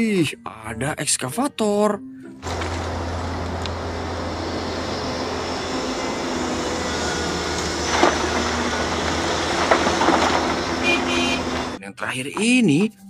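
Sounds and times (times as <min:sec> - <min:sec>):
excavator running: 0:02.4 - 0:11.8
rock clattering into truck bed: 0:07.9 - 0:10.8.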